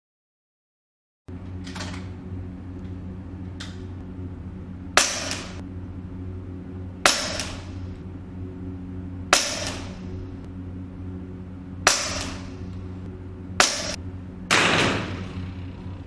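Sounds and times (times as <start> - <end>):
steady low hum: 1.3 - 16.0
air rifle shots: 5.0 - 5.6, 7.0 - 7.8, 9.3 - 10.1, 11.8 - 12.6, 13.6 - 15.3.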